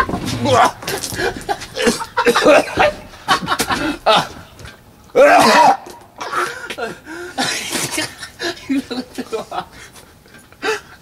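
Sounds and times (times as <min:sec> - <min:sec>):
man retching: 0:00.0 - 0:03.1, 0:05.2 - 0:08.2
man coughing and gagging: 0:00.4 - 0:04.4, 0:05.2 - 0:09.7.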